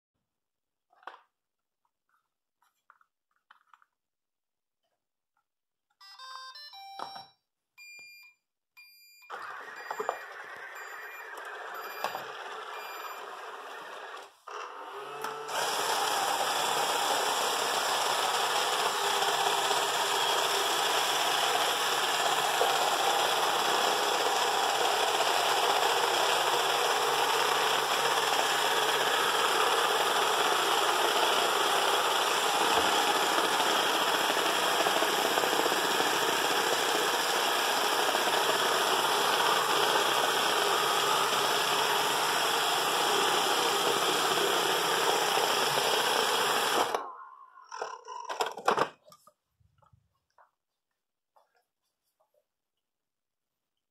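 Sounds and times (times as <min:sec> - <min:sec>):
robot vacuum cleaner whirring: 0:09.3 - 0:48.9.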